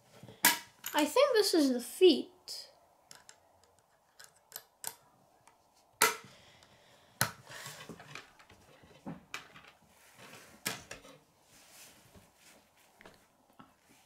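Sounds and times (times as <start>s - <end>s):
plastic pieces clicking together: 3.1s - 5.0s.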